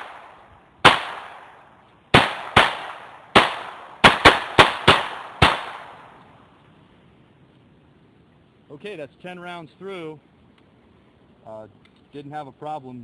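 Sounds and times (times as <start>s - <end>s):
pistol shots: 0.0s - 6.2s.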